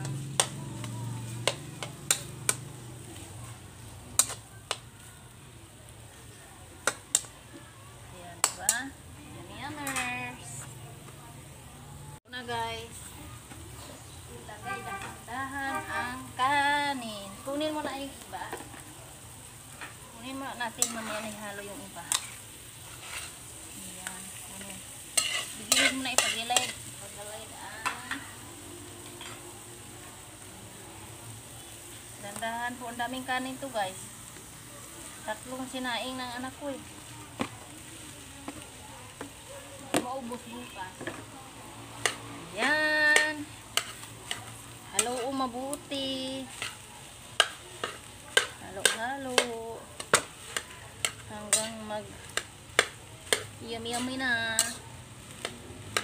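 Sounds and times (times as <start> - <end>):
utensil scraping metal wok: 0.0 - 4.8, 8.4 - 10.7, 13.8 - 29.7, 39.2 - 56.0
frying sizzle: 0.0 - 56.0
metal spatula clinking against wok: 25.2 - 26.8, 47.4 - 54.8.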